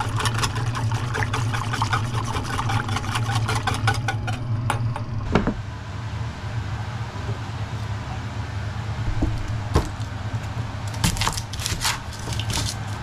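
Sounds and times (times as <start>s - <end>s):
whisk scraping metal saucepan: 0.0s - 4.4s
low hum: 0.0s - 11.0s.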